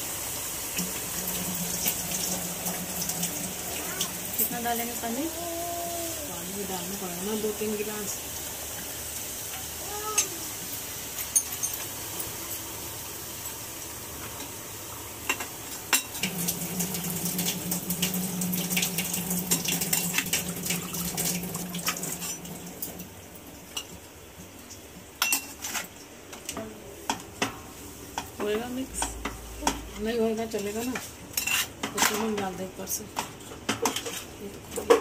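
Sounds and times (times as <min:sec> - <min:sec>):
water pouring into a pot: 0:00.0 - 0:04.4, 0:16.1 - 0:23.1
metal utensils clinking: 0:11.2 - 0:12.7, 0:25.2 - 0:25.9.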